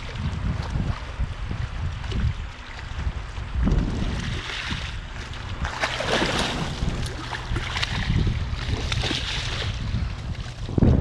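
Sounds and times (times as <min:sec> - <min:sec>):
wind rumble on microphone: 0:00.0 - 0:11.0
small waves washing over rocks: 0:03.9 - 0:09.8
fish splashing at surface: 0:04.1 - 0:09.8.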